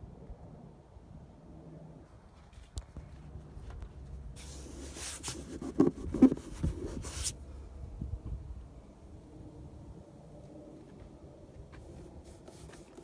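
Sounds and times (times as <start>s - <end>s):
rubbing on phone microphone: 4.4s - 7.4s, 11.8s - 13.0s.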